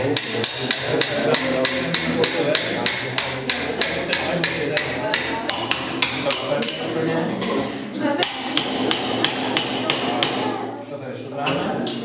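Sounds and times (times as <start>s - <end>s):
mallet knocking on metal: 0.1s - 6.9s, 8.2s - 10.5s.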